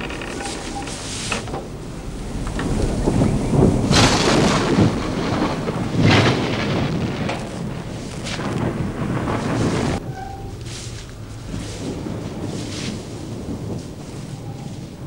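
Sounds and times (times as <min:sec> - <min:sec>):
steady rain: 0:00.0 - 0:15.0
thunder rumbling: 0:00.0 - 0:15.0
loud thunder claps: 0:01.4 - 0:15.0.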